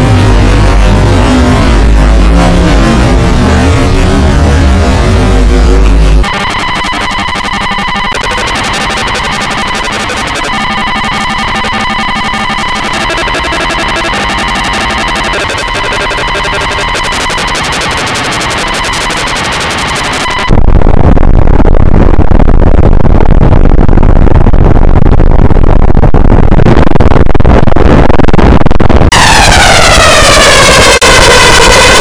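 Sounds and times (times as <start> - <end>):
bass-heavy distortion: 0.0 - 32.0
harsh electronic buzzing: 6.0 - 20.9
sweeping warbling tones: 6.2 - 20.5.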